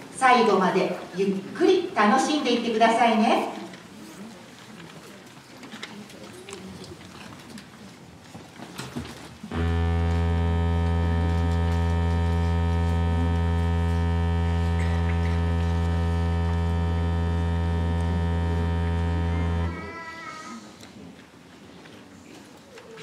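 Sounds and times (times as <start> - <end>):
loud electric buzzer: 9.5 - 19.9.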